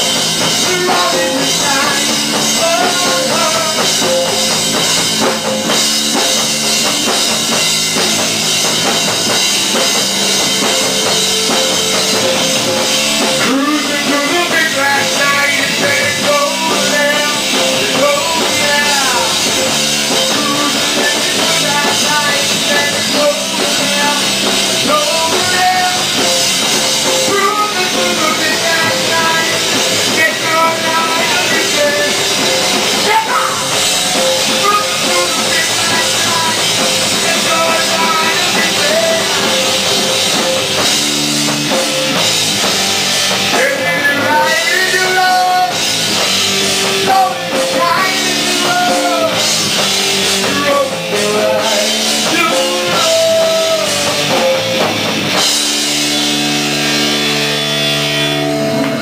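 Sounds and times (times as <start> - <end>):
distorted electric guitars: 0.0 - 59.0
drum kit: 0.0 - 59.0
shouted vocals: 32.9 - 39.4.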